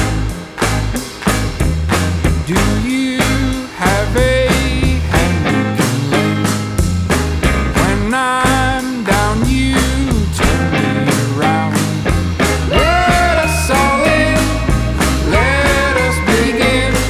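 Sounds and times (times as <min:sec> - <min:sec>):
bass: 0:00.0 - 0:17.0
drum beat: 0:00.0 - 0:17.0
guitar: 0:00.0 - 0:17.0
sliding melodic line: 0:12.7 - 0:17.0.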